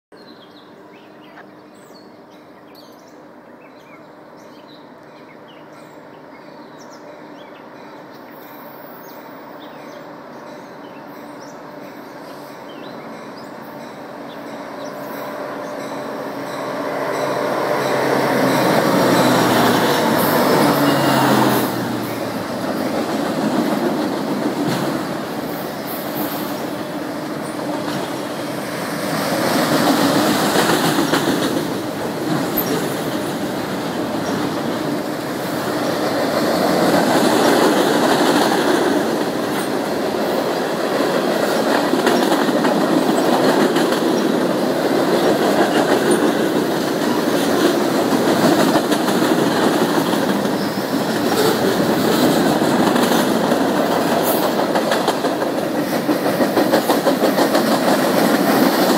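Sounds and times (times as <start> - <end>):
diesel locomotive engine drone: 0.2 - 58.9.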